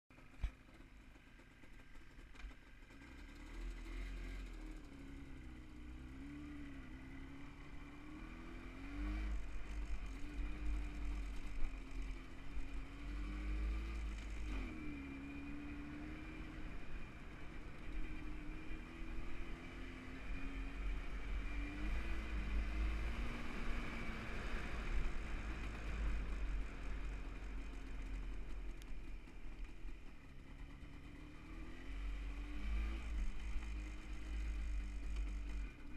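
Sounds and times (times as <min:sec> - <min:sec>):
motorcycle engine revving: 0:00.2 - 0:35.9.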